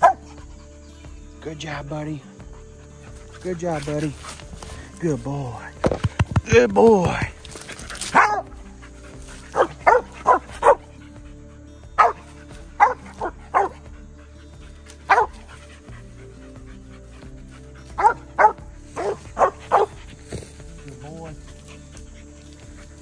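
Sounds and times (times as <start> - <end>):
dog barking: 0.0 - 0.4, 7.6 - 11.1, 12.0 - 13.9, 14.9 - 15.8, 17.7 - 22.1.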